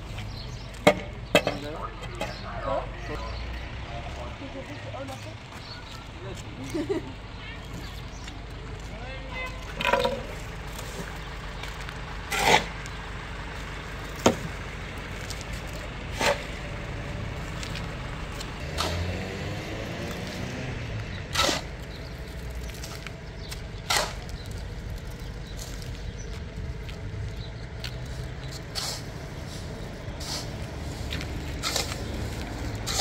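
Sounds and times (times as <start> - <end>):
shovel scraping wet cement: 12.3 - 12.8, 15.5 - 16.6, 18.6 - 19.1, 21.1 - 24.5, 28.5 - 33.0.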